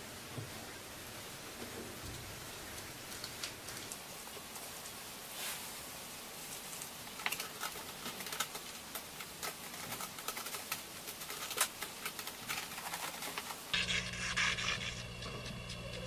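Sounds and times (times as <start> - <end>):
steady hiss: 0.0 - 12.5.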